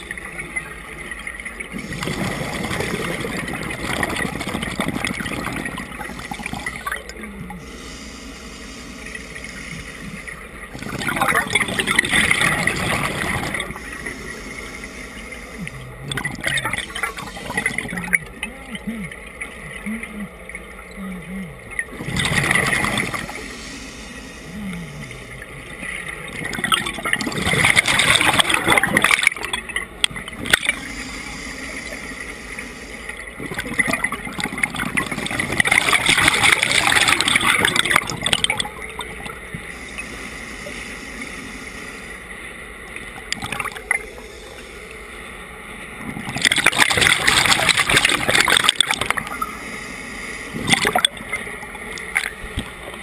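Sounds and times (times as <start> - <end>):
underwater wash of water: 0.0 - 20.9, 21.8 - 53.0
exhaled bubbles gurgling: 0.0 - 53.0.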